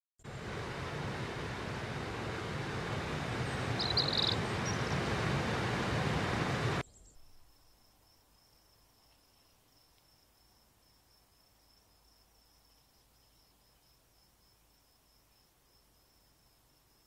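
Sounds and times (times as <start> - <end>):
waterfall rushing: 0.3 - 6.8
high-pitched insect trill: 3.8 - 4.4.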